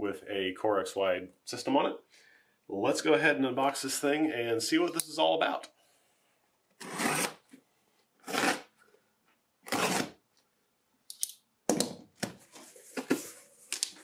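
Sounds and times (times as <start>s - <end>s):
blade slitting packing tape: 8.2s - 8.7s, 9.7s - 10.2s
tape ripping: 9.6s - 10.2s.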